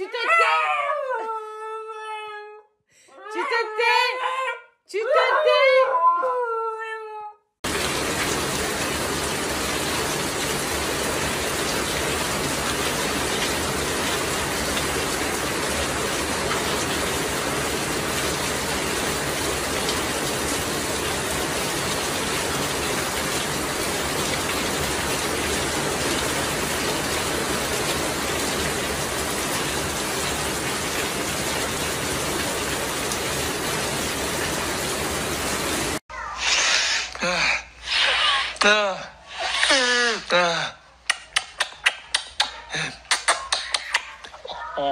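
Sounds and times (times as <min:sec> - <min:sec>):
dog howling: 0:00.2 - 0:02.6
heavy rain on concrete: 0:07.6 - 0:36.0.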